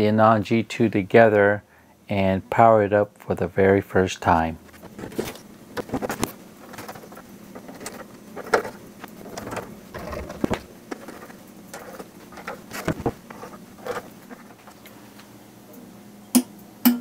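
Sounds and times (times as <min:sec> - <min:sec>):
clicks scrapes and knocks: 0:04.7 - 0:14.8.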